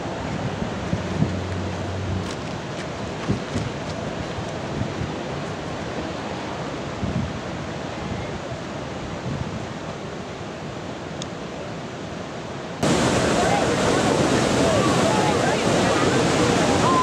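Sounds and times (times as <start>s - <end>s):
wind buffeting microphone: 0.0s - 6.1s, 6.8s - 8.4s
steady wind: 0.0s - 17.0s.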